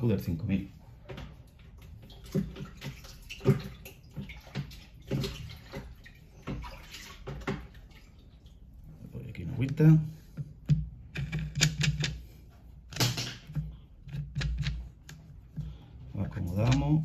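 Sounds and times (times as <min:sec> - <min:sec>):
water splashing: 0:01.1 - 0:09.2.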